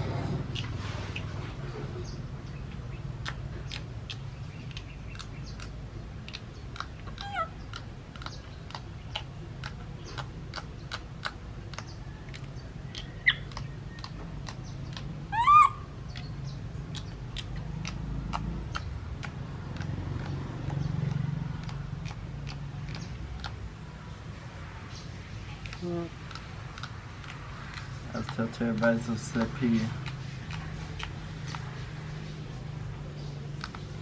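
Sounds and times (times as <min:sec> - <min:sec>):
high animal calls: 0:06.7 - 0:08.3, 0:14.9 - 0:16.2.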